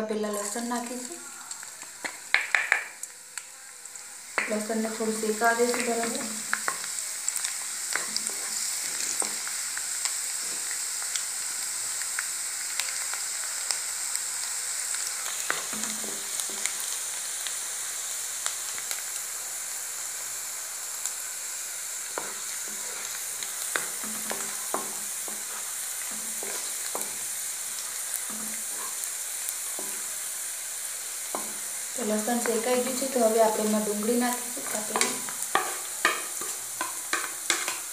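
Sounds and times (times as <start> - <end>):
garlic sizzling in hot oil: 0.0 - 37.9
wooden spatula scraping pan: 22.2 - 27.3, 28.2 - 29.1.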